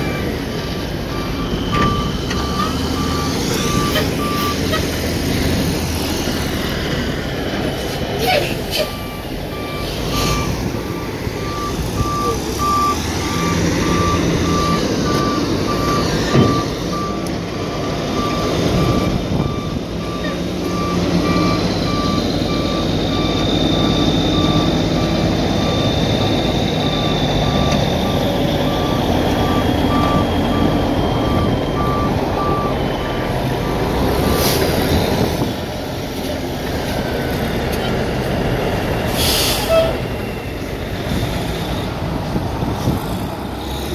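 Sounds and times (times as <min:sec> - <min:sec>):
backup alarm beeping: 0:00.0 - 0:04.8, 0:08.9 - 0:34.4
diesel engine running: 0:00.0 - 0:43.9.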